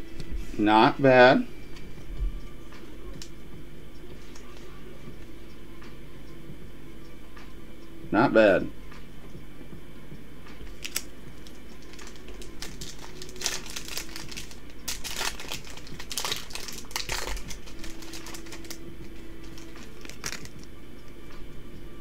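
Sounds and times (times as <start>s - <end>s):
foil wrapper tearing and crinkling: 10.7s - 20.7s.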